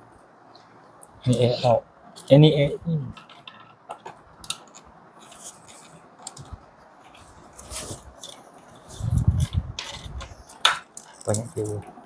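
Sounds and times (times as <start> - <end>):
plastic parts clicking and scraping: 3.1 - 12.0.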